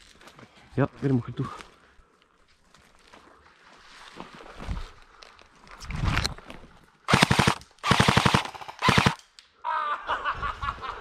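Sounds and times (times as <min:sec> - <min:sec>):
airsoft rifle full-auto bursts: 0:07.1 - 0:09.2.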